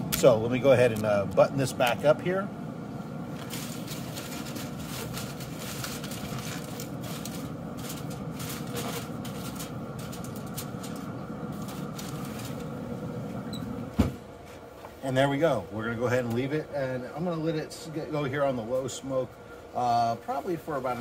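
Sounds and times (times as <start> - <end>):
steady low rumble: 0.0 - 13.9
aluminium foil crinkling: 3.4 - 12.8.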